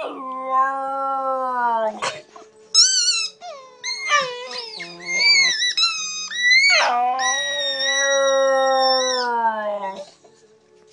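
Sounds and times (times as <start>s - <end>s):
dog whining: 2.8s - 10.2s
dog howling: 3.8s - 10.1s.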